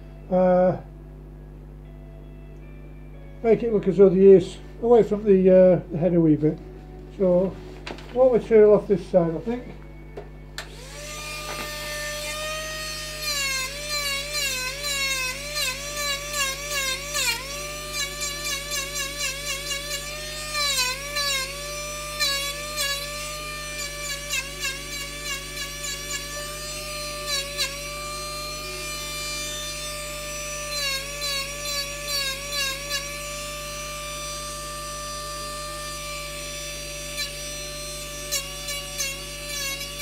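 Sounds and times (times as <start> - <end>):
rotary carving tool whining: 10.6 - 40.0.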